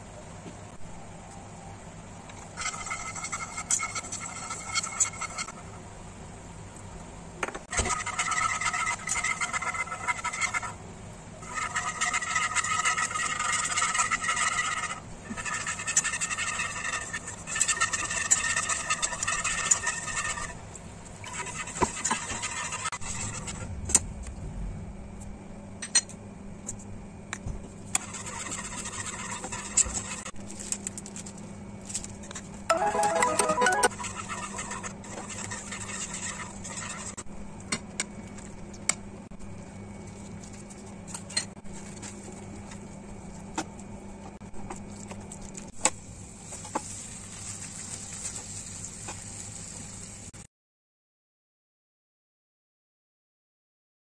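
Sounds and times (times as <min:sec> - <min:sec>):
whisk scraping in a frying pan: 0:02.6 - 0:05.8, 0:07.7 - 0:10.8, 0:11.4 - 0:23.7, 0:28.0 - 0:30.4, 0:33.7 - 0:37.3, 0:46.3 - 0:50.3
low hum: 0:23.0 - 0:25.8.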